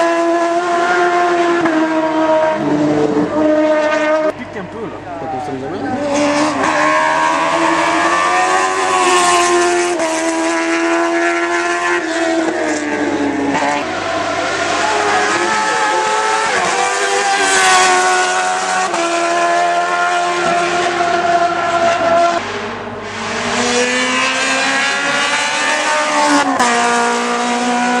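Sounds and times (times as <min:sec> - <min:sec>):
race car engine at high revs: 0:00.0 - 0:28.0.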